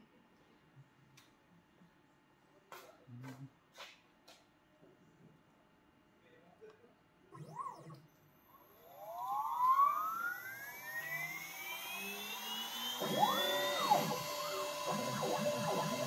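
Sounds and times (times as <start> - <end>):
router spindle whine rising: 7.3 - 16.0
stepper motors whirring: 7.3 - 16.0.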